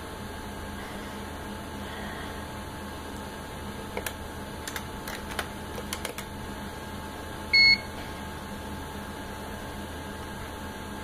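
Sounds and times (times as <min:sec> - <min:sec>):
keyboard keys clicking: 0:04.0 - 0:06.3.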